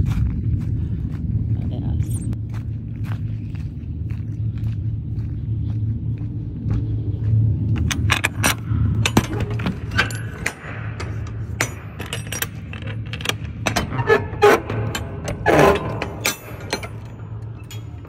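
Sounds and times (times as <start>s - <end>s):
metal hardware clicking and jingling: 7.8s - 13.9s, 14.6s - 18.0s.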